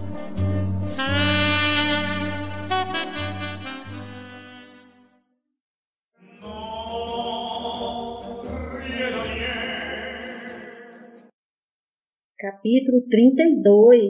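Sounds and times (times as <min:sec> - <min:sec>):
saxophone tune: 0:00.2 - 0:05.3
slow choir-like music: 0:06.2 - 0:11.4.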